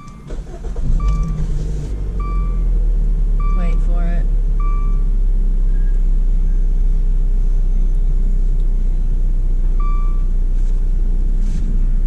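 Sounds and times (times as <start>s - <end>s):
car engine idling: 0.0s - 12.0s
electronic dashboard chime: 3.4s - 4.0s, 4.6s - 5.1s, 9.8s - 10.3s.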